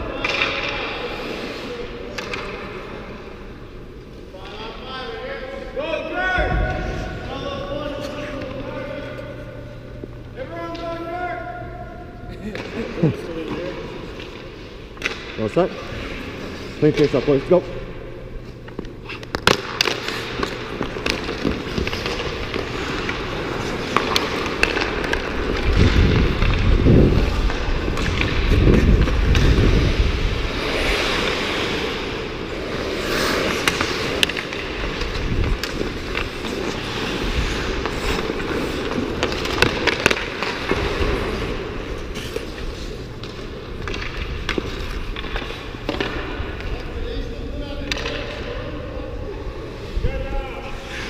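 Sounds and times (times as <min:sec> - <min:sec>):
hockey sticks and puck clacking: 0:00.0 - 0:03.2, 0:12.4 - 0:49.2
skates scraping ice: 0:12.4 - 0:51.0.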